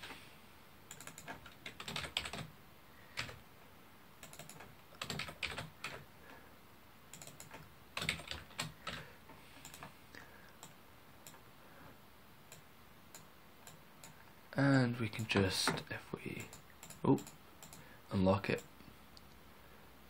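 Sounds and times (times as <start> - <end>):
typing on keyboard: 0.9 - 2.5, 3.1 - 3.4, 4.2 - 6.1, 7.1 - 9.9, 16.4 - 17.9.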